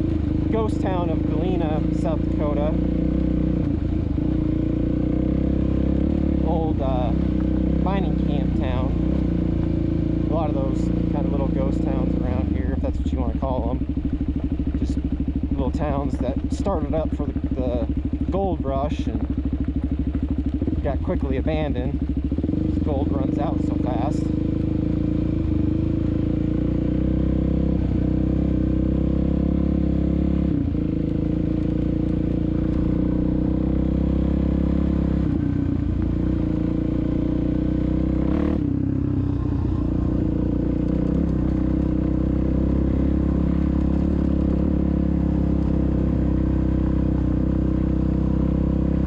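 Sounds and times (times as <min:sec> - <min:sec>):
motorcycle engine running: 0:00.0 - 0:49.0.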